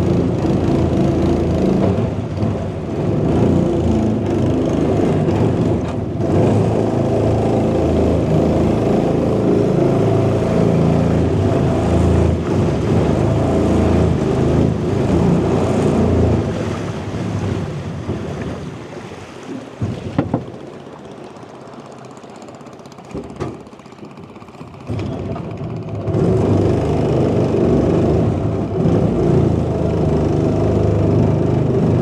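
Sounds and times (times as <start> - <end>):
boat motor running: 0.0 - 32.0
sharp knocks: 19.8 - 20.6.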